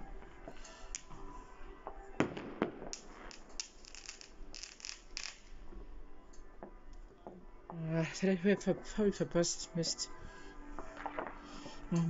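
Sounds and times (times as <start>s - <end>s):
firework crackling pops: 0.9s - 1.2s, 2.2s - 5.7s, 10.9s - 11.4s
firework bangs: 2.2s - 5.6s.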